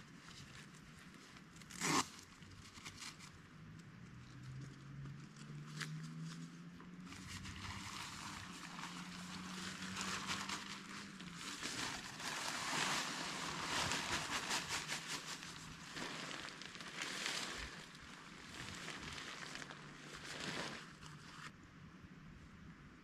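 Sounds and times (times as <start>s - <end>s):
tent fabric rustling: 6.1s - 21.5s.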